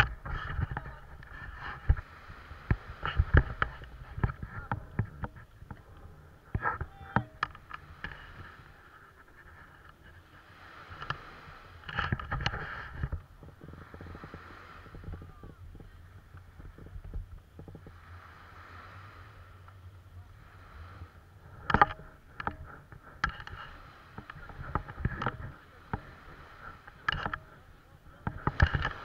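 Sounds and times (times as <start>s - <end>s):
low steady hum: 0.0s - 29.0s
camera handling knocks and rustles: 2.7s - 8.2s, 11.8s - 13.9s, 21.6s - 26.1s, 26.8s - 27.5s, 28.2s - 29.0s.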